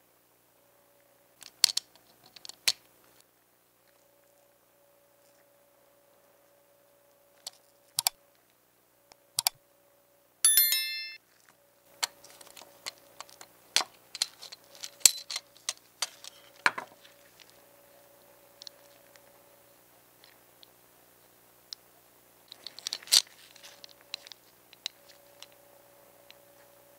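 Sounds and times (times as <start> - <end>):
bright metallic ring: 10.5 - 11.2.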